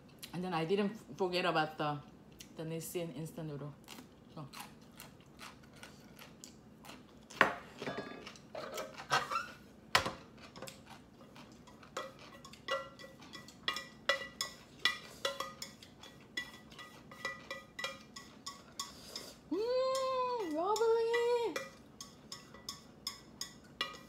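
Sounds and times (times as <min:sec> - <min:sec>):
utensils clinking against a dish: 0:07.7 - 0:09.5, 0:10.4 - 0:24.0.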